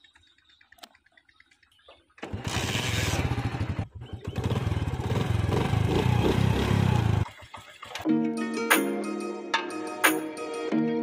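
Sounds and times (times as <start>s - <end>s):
motorcycle engine running: 0.0s - 8.0s.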